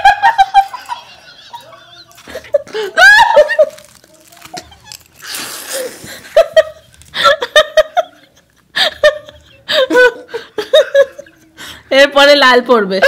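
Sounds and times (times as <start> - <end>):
women laughing: 0.0 - 5.2, 5.8 - 11.8
breathy puff: 5.2 - 6.4.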